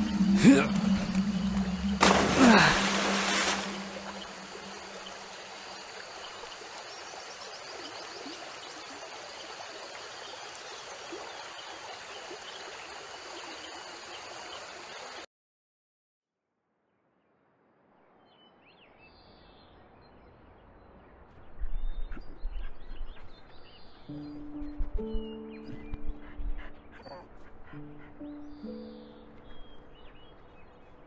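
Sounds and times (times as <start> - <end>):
stream flowing over stones: 0.4 - 15.2.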